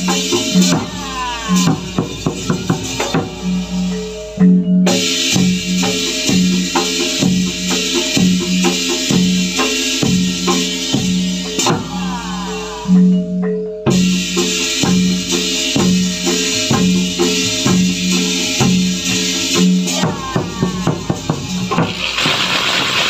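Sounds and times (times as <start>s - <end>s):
drums and percussion beating: 0.0s - 23.0s.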